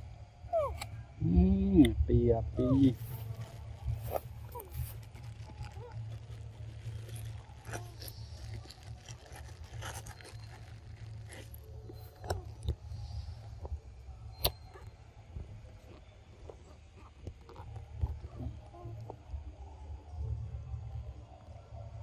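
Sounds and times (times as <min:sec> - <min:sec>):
light scrapes and clicks: 0:03.0 - 0:14.9.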